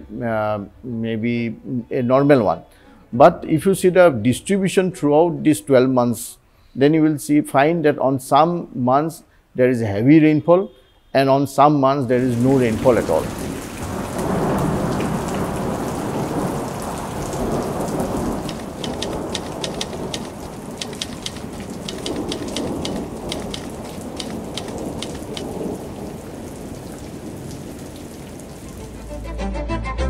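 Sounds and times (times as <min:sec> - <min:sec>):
drop splashes: 0:12.2 - 0:29.3
low thunder rumbling: 0:12.2 - 0:29.3
rain on wet pavement: 0:12.2 - 0:29.3.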